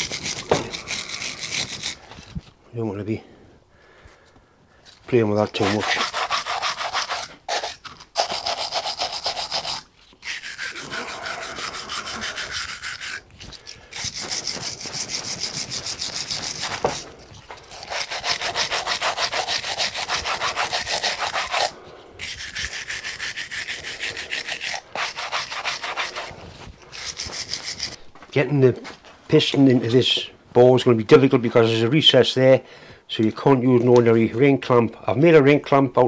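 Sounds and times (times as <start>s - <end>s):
wire brush scrubbing metal: 0.0s - 2.1s, 5.1s - 28.0s.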